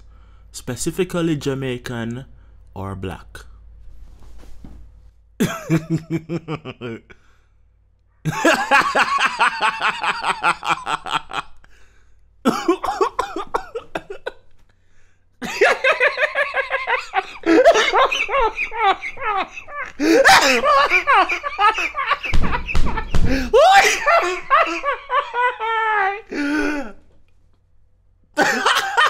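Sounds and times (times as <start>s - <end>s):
man laughing: 5.4s - 7.3s, 8.3s - 11.7s, 12.5s - 14.4s, 15.4s - 27.0s, 28.4s - 29.0s.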